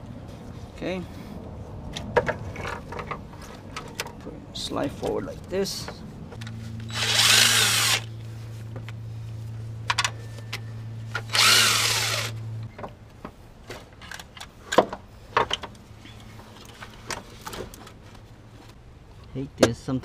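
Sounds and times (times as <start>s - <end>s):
cordless driver motor whine: 6.8s - 8.1s, 11.2s - 12.4s.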